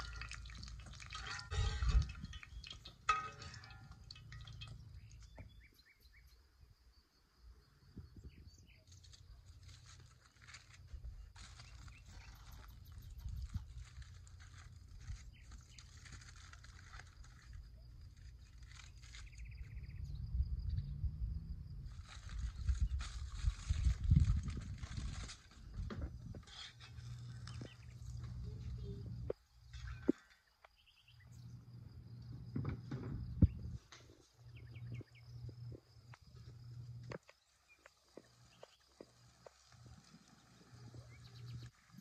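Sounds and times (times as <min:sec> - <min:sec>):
wind rumbling on microphone: 0:00.0 - 0:03.5, 0:07.9 - 0:09.3, 0:10.9 - 0:30.2, 0:32.2 - 0:37.2
steel bowl and utensils clicking: 0:00.0 - 0:05.4
crickets trilling: 0:00.0 - 0:42.0
low rumble: 0:19.5 - 0:25.0.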